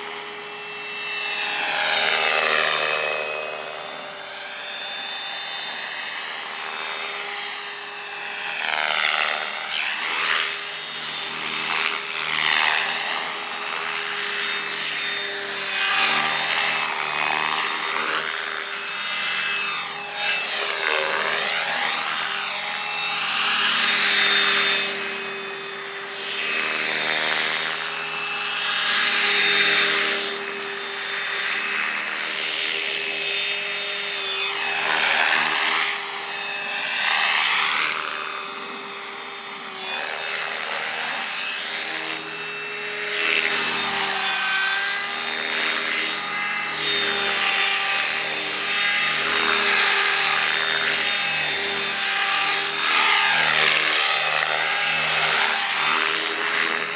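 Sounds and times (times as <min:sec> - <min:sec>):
rc helicopter motor whine: 0:00.0 - 0:56.9
rotor blades swishing: 0:08.4 - 0:38.8.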